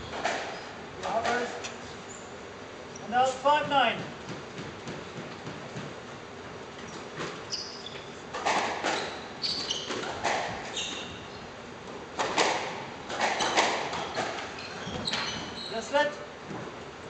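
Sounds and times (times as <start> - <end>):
squash ball hitting rackets and walls: 0.0 - 1.6, 3.5 - 6.2, 6.9 - 15.6
shoes squeaking on wooden floor: 6.8 - 8.3, 8.9 - 11.4, 13.3 - 15.9.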